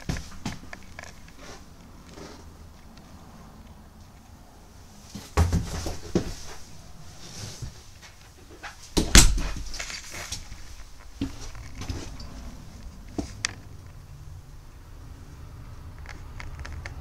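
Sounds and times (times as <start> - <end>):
handling noise: 5.0 - 14.0
knocks and bumps of a door: 5.3 - 6.3, 9.0 - 9.8.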